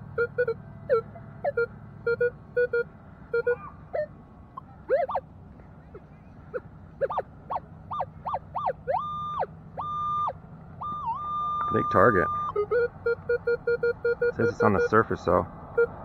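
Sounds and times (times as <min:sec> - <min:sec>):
metal detector beeps and tones: 0:00.2 - 0:04.1, 0:04.9 - 0:05.2, 0:07.0 - 0:07.2, 0:07.9 - 0:15.1.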